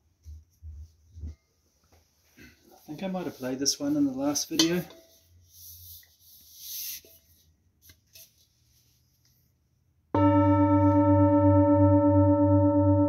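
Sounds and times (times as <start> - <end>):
singing bowl ringing: 10.2 - 13.0.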